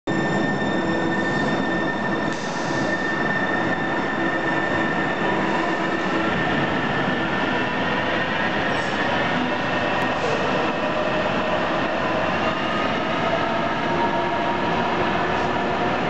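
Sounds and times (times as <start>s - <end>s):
light rail train rumble: 0.1s - 16.0s.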